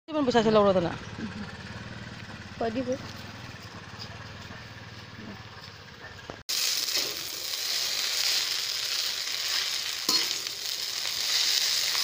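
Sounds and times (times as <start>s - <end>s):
noodles sizzling in a wok: 6.5s - 12.0s
metal utensil knocking on pan: 10.1s - 10.5s.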